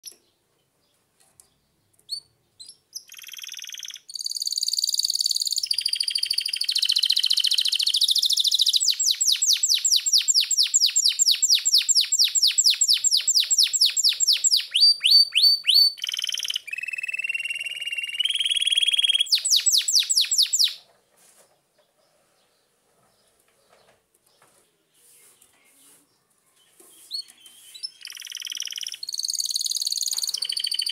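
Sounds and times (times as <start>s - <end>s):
canary singing: 1.9s - 20.8s, 26.6s - 30.9s.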